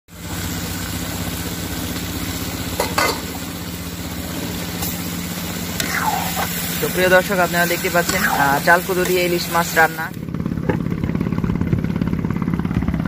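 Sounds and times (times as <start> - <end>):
fish sizzling in a pan: 0.1 - 10.2
low pulsing drone: 0.1 - 13.0.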